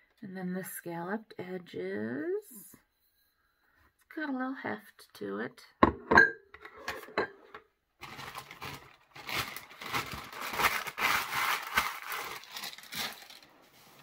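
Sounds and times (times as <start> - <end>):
packing wrap crinkling: 8.0 - 14.0.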